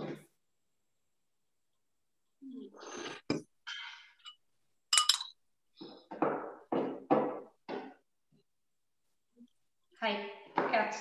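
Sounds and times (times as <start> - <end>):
utensil clinking: 4.2 - 5.4.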